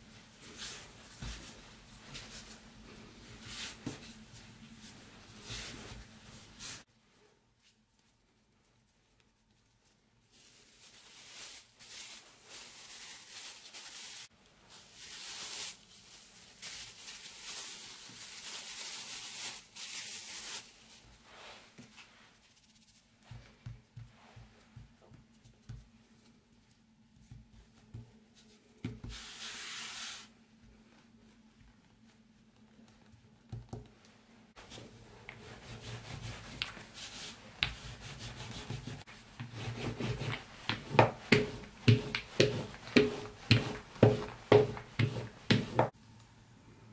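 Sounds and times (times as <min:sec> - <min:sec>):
rolling pin rolling dough: 0:34.6 - 0:46.0.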